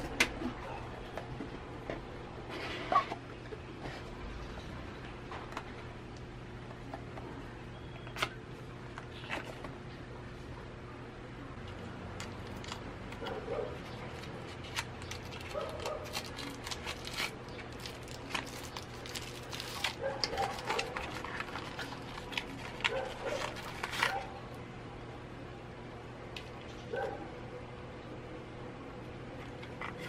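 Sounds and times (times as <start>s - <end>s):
plastic bag crinkling: 13.7s - 24.4s.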